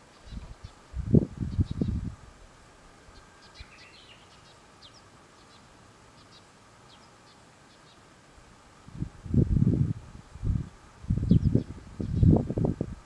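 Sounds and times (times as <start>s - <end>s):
birds chirping: 1.5s - 2.1s, 3.1s - 8.1s, 10.6s - 12.4s.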